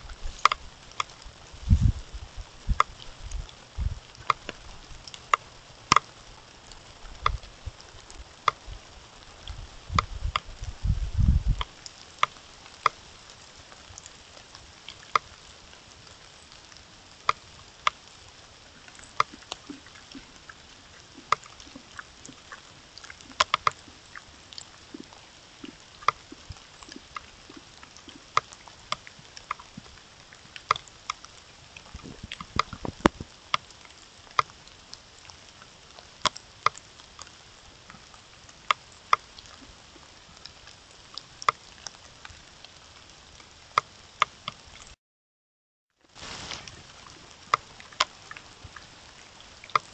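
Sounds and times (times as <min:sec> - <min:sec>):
low rustle against camera: 0:00.0 - 0:05.6, 0:06.7 - 0:11.8, 0:31.8 - 0:33.4, 0:46.1 - 0:47.5
steady hiss: 0:00.0 - 0:44.9, 0:46.1 - 0:49.9
sharp ticks and taps: 0:02.7 - 0:03.0, 0:04.2 - 0:06.1, 0:21.3 - 0:22.4, 0:23.4 - 0:23.8, 0:25.0 - 0:29.9.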